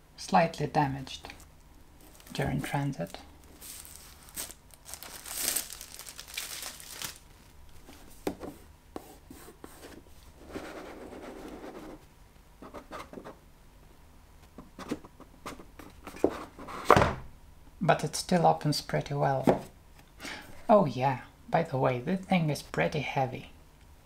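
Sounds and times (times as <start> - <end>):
plastic wrap tearing and crinkling: 2.0 - 8.1.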